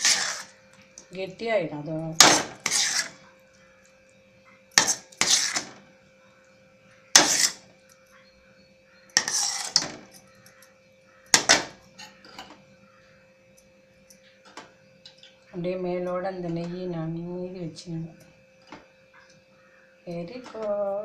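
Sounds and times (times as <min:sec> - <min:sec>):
ladle scraping a metal pan: 0:00.0 - 0:00.6, 0:02.3 - 0:03.2, 0:04.8 - 0:05.8, 0:07.2 - 0:07.6, 0:09.2 - 0:10.0.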